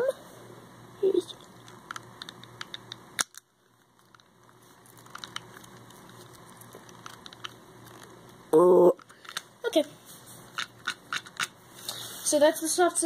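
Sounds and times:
fidget toy clicks and taps: 1.6s - 3.4s, 10.6s - 11.6s.

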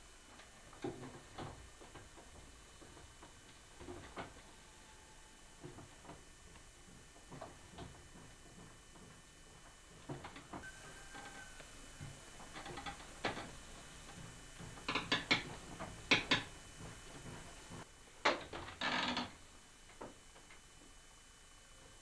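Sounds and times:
potter's wheel knocking and clattering: 12.0s - 18.7s.

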